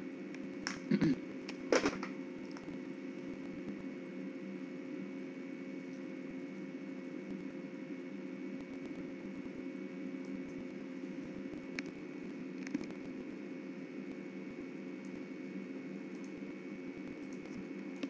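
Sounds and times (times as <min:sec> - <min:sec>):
faint high whine: 0:00.0 - 0:18.0
mechanical room hum: 0:00.0 - 0:18.0
faint ticks: 0:11.5 - 0:12.0, 0:16.1 - 0:16.4, 0:17.0 - 0:18.0.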